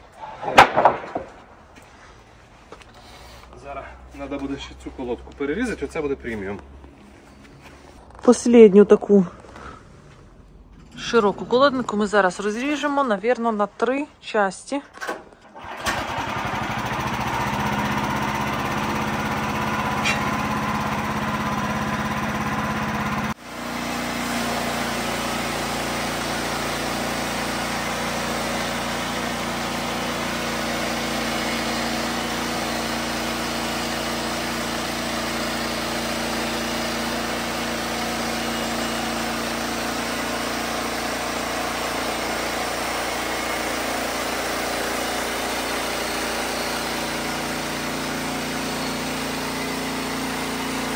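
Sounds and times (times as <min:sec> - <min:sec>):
gasoline engine running: 0:15.5 - 0:50.9.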